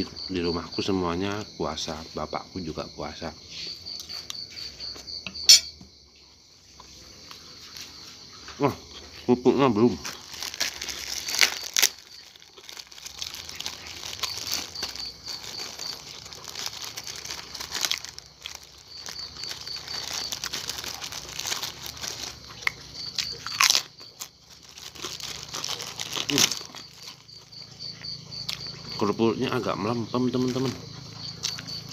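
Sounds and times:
plastic bag crinkling: 0:09.9 - 0:27.7
crackers crunching when chewed: 0:09.9 - 0:29.0, 0:30.3 - 0:31.9.

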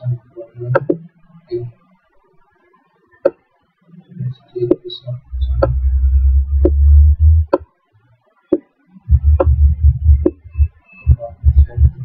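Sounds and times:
loud low rumble: 0:05.3 - 0:07.5, 0:09.1 - 0:10.7.

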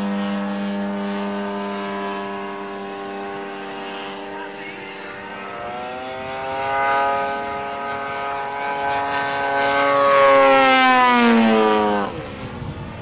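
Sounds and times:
model plane engine and propeller: 0:00.0 - 0:13.0.

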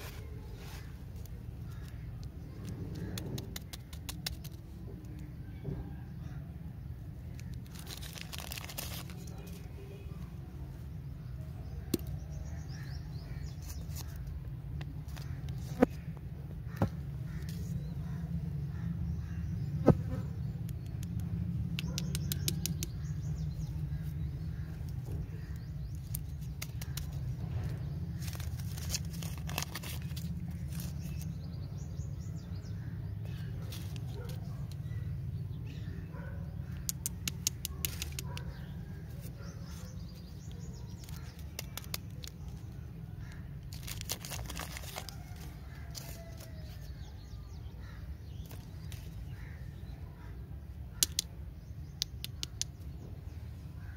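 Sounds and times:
candy wrapper crinkling: 0:07.3 - 0:09.8, 0:25.5 - 0:27.4, 0:28.1 - 0:31.4, 0:36.8 - 0:38.2, 0:40.4 - 0:47.1
sharp clicks: 0:20.6 - 0:23.0, 0:36.7 - 0:38.5, 0:50.9 - 0:52.9.

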